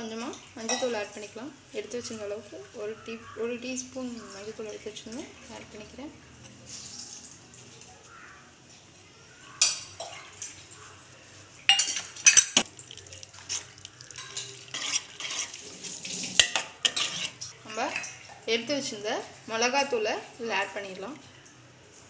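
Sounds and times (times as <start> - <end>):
spoon scraping metal pot: 13.4 - 18.2.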